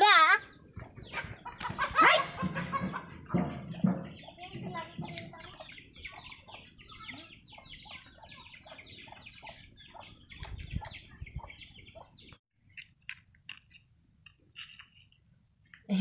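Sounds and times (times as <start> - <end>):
chickens peeping: 0.7 - 12.4.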